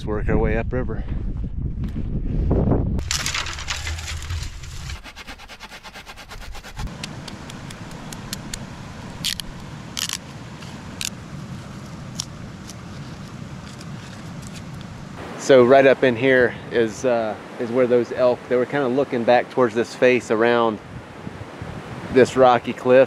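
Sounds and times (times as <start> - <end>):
dry brush rustling: 3.0 - 15.0
knife shaving scrapes: 3.8 - 6.9.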